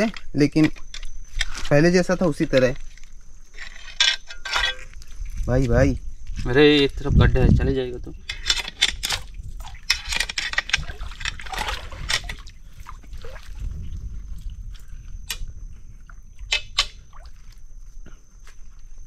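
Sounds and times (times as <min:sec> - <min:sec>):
water sloshing and splashing: 0:08.5 - 0:17.8.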